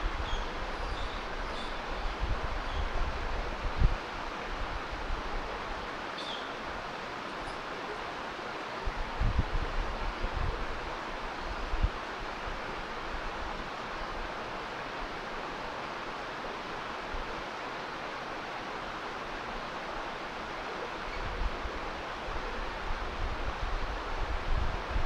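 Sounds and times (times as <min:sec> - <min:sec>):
stream running over rocks: 0:00.0 - 0:25.0
wind buffeting microphone: 0:08.8 - 0:12.6, 0:21.1 - 0:25.0.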